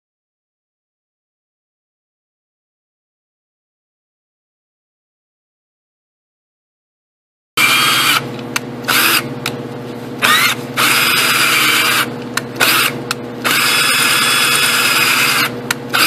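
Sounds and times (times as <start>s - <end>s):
cordless drill whining: 7.6s - 8.2s, 8.9s - 9.3s, 10.2s - 16.0s.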